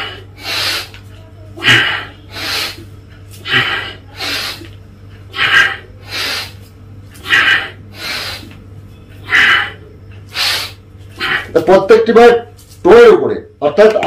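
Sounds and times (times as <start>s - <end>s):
man breathing forcefully: 0.0s - 1.0s, 1.6s - 8.6s, 9.2s - 11.6s.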